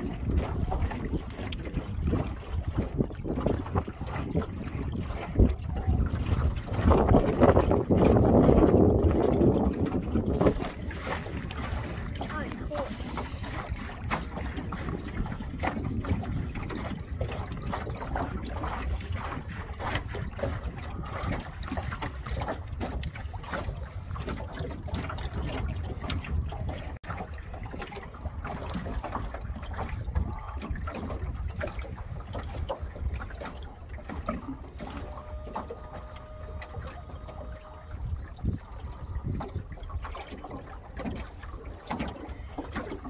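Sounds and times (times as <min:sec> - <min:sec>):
water splashing against hull: 0:00.0 - 0:43.0
wind buffeting microphone: 0:00.0 - 0:43.0.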